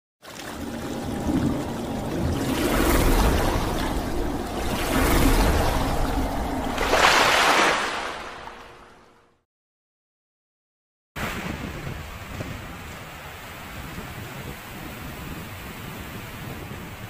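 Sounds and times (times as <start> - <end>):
rushing splashing water: 0.2 - 9.2
low rumble: 0.4 - 9.2.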